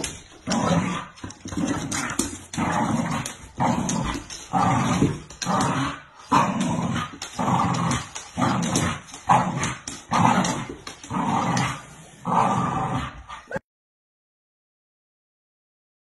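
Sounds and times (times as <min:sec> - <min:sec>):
dog growling: 0:00.0 - 0:13.6.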